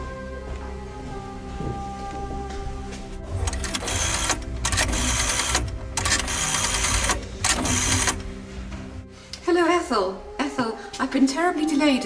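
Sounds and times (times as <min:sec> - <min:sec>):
background music: 0:00.0 - 0:12.0
rapid mechanical rattle: 0:03.4 - 0:08.2.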